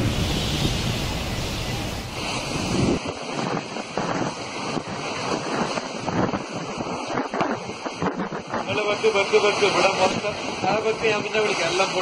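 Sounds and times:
driving rain: 0:00.0 - 0:03.2
storm wind buffeting microphone: 0:00.0 - 0:12.0.

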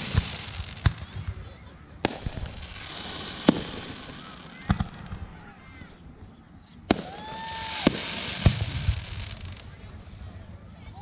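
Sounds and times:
firework shells bursting: 0:00.0 - 0:01.2, 0:02.0 - 0:05.3, 0:06.9 - 0:09.7.

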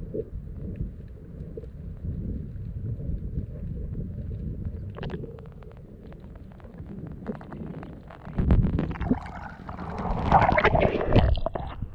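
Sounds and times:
underwater low rumble: 0:00.0 - 0:11.9
crackling clicks: 0:00.1 - 0:11.9
water rushing and sloshing: 0:08.8 - 0:11.9.

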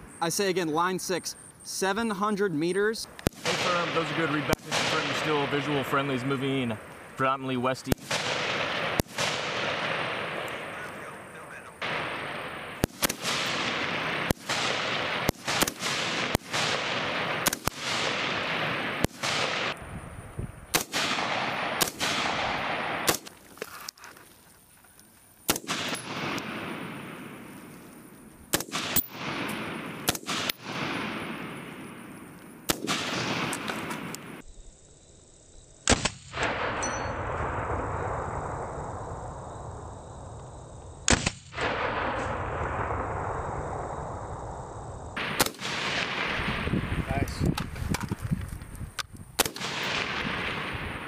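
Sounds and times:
rifle shots with echo: 0:03.2 - 0:06.8, 0:07.8 - 0:19.8, 0:20.7 - 0:23.4, 0:25.5 - 0:34.4, 0:35.8 - 0:38.7, 0:41.1 - 0:43.9, 0:45.2 - 0:47.2, 0:49.4 - 0:51.0.

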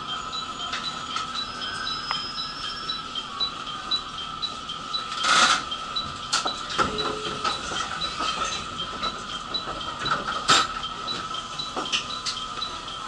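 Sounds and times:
high two-note electronic beeping: 0:00.0 - 0:08.9
steady hum: 0:00.0 - 0:13.0.

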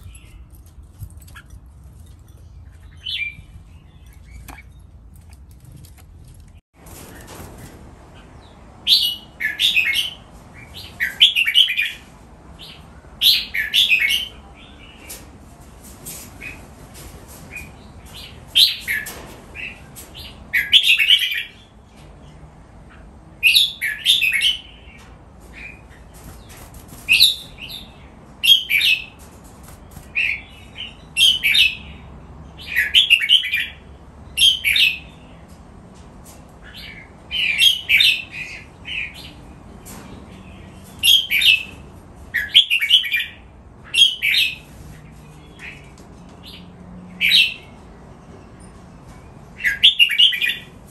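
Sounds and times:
bird singing warbled phrases: 0:36.6 - 0:39.5, 0:49.6 - 0:50.8.

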